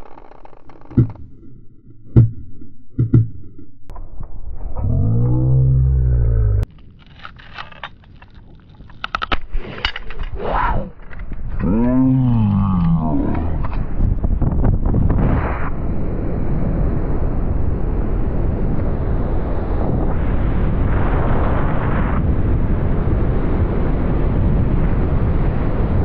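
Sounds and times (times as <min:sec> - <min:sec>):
strong wind on microphone: 0:13.2 - 0:26.0.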